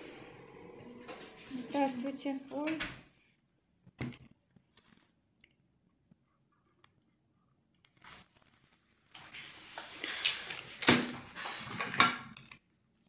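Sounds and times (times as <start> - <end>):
plastic wrapper crinkling and ripping: 7.8 - 12.6.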